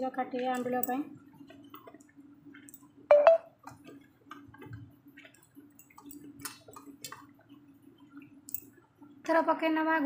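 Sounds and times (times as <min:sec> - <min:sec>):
bubbling liquid ticks and splashes: 0:00.0 - 0:10.0
faint steady hum: 0:00.0 - 0:10.0.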